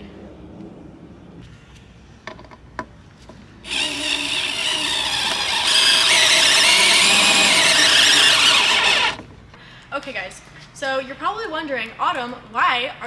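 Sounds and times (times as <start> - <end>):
cordless driver motor whine: 3.7 - 9.2.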